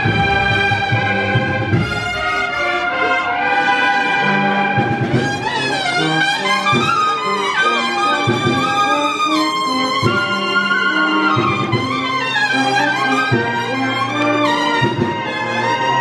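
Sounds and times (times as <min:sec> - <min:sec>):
brass band playing: 0:00.0 - 0:16.0.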